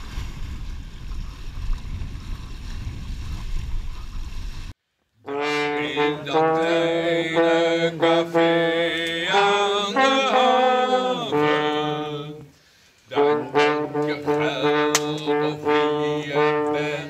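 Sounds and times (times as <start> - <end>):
trombone: 5.2 - 12.4, 13.1 - 17.0
man singing in long held notes: 5.4 - 17.0.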